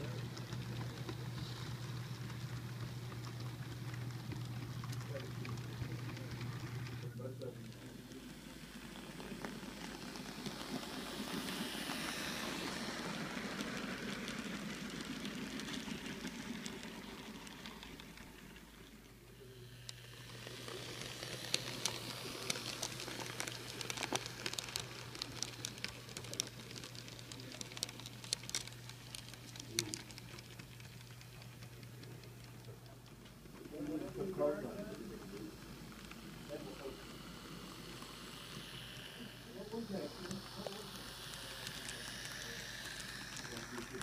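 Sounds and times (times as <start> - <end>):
model train passing with hum: 0.0 - 44.0
model train rolling whir: 0.0 - 44.0
small wheels clicking on rails: 0.0 - 44.0.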